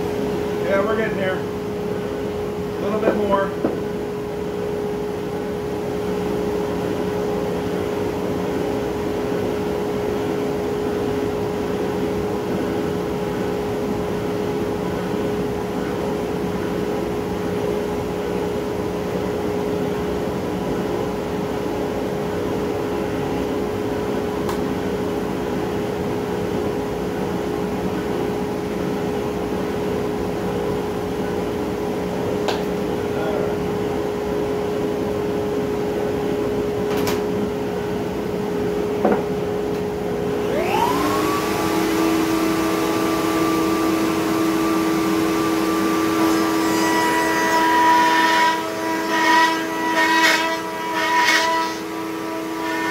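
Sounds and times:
router humming: 0:40.4 - 0:52.9.

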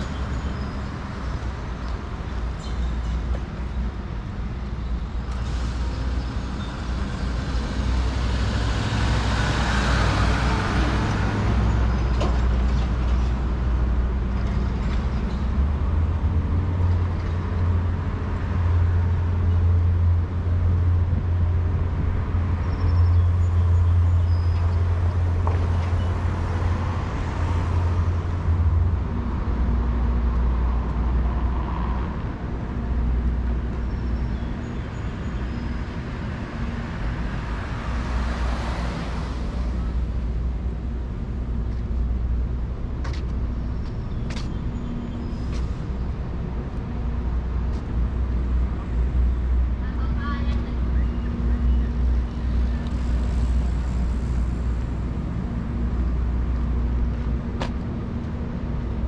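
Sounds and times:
low traffic rumble: 0:00.0 - 0:59.0
car passing: 0:36.2 - 0:41.3.

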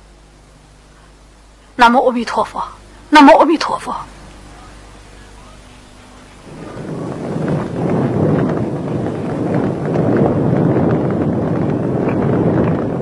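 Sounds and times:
bonfire roaring and crackling: 0:04.7 - 0:13.0.

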